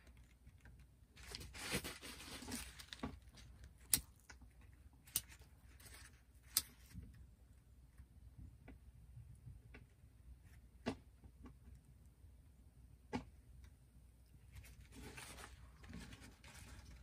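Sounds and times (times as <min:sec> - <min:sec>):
newspaper rustling: 0:01.2 - 0:03.6.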